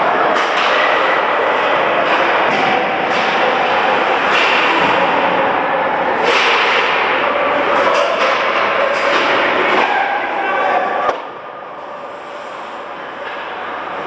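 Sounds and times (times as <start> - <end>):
arena noise: 0.0 - 14.0
hockey sticks cracking: 6.2 - 10.0.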